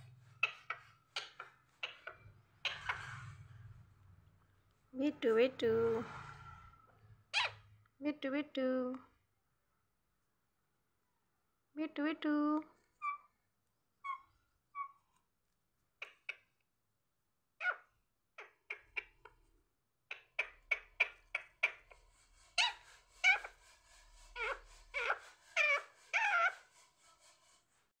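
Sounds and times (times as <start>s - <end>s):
parakeet chattering: 0.4s - 3.2s, 7.3s - 7.6s, 17.6s - 19.3s, 20.1s - 23.7s, 24.4s - 26.8s.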